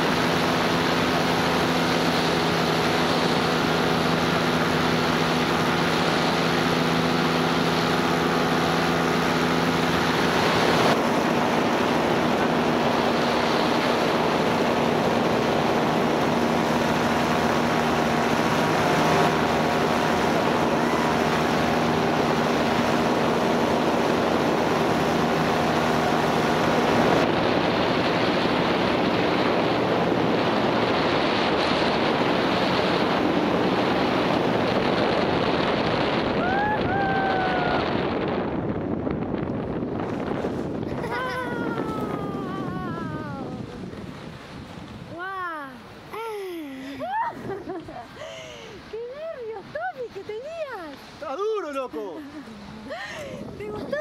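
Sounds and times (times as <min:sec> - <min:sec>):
two-stroke engine running: 0:00.0 - 0:36.2
wind on microphone: 0:00.0 - 0:46.3, 0:46.9 - 0:51.3, 0:52.3 - 0:54.0.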